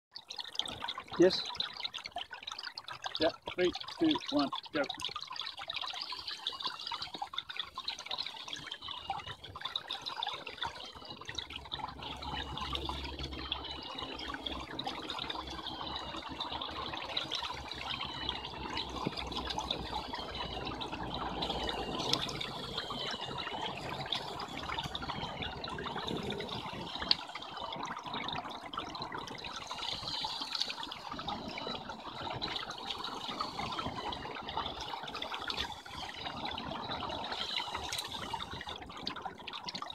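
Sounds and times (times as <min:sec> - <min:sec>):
water trickling and splashing: 0:00.1 - 0:39.9
high wavering whine: 0:10.8 - 0:28.4.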